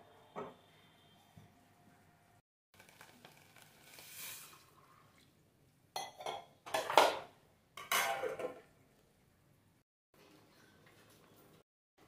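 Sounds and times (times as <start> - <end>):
water hissing in hot pot: 2.8 - 4.8.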